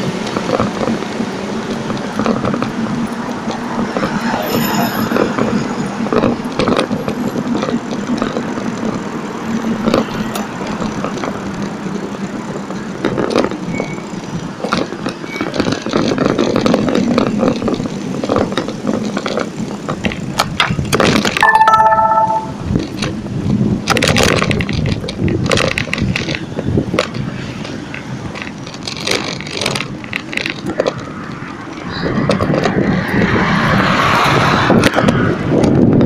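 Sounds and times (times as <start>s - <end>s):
bicycle rattling over paving: 0.0s - 21.5s, 22.6s - 36.0s
street traffic passing: 0.0s - 36.0s
short pitched beep: 21.4s - 22.6s.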